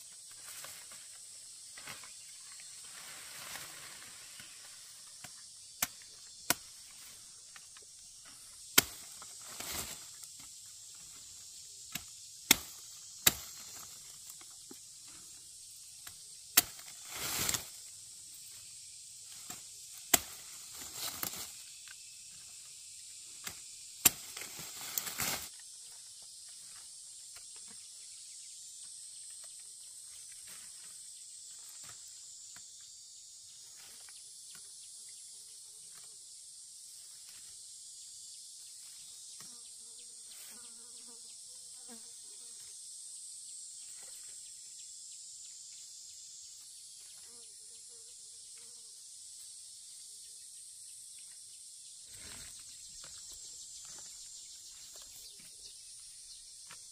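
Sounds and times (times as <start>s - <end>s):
rustling leaves and stalks: 0.0s - 27.8s, 52.0s - 56.9s
insects chirring: 0.0s - 56.9s
machete chopping stalks: 5.2s - 7.2s, 8.2s - 14.8s, 16.0s - 17.8s, 19.3s - 21.8s, 23.4s - 25.5s.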